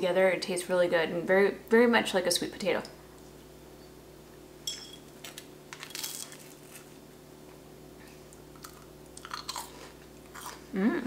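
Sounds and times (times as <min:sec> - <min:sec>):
crunchy bite: 0:08.6 - 0:10.6.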